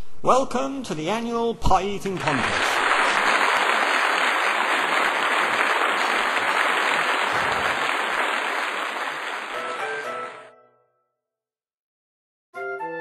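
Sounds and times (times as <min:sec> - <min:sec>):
crowd applauding: 0:02.0 - 0:10.5.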